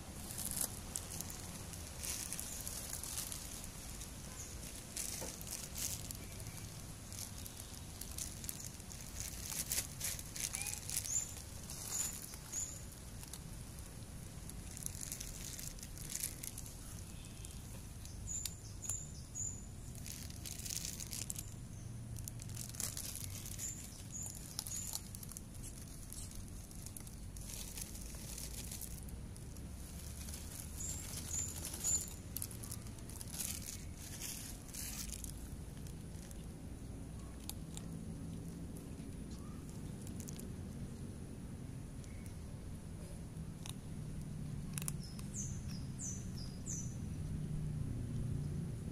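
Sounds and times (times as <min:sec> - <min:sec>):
plastic bag crinkling: 0:00.0 - 0:19.1, 0:19.8 - 0:36.6, 0:37.2 - 0:40.5
cats crunching dry kibble: 0:00.0 - 0:48.4
bird chirping: 0:04.2 - 0:13.4, 0:14.9 - 0:22.0, 0:22.6 - 0:28.7, 0:30.3 - 0:35.3, 0:39.3 - 0:40.0, 0:44.9 - 0:47.3.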